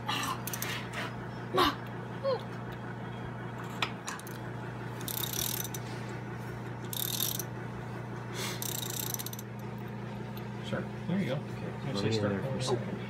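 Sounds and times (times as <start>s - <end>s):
steady low hum: 0.0s - 13.0s
metallic clicking of hand tools: 8.6s - 9.5s.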